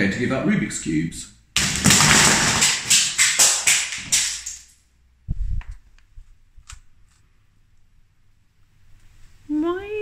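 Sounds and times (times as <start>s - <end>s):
plastic cubes clattering on glass: 1.6s - 4.7s.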